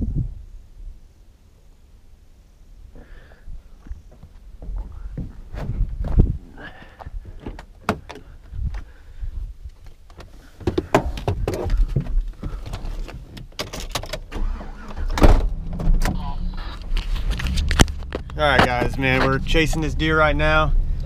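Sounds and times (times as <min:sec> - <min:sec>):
knocks clunks and rustles: 0:04.1 - 0:08.9, 0:09.8 - 0:16.2, 0:16.8 - 0:19.9.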